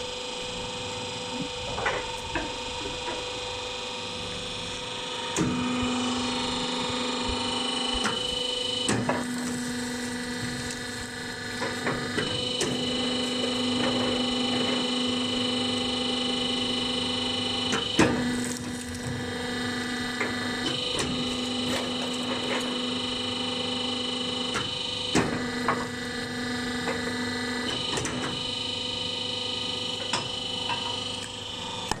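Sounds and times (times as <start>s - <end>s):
hydraulic power unit whine: 0.0s - 32.0s.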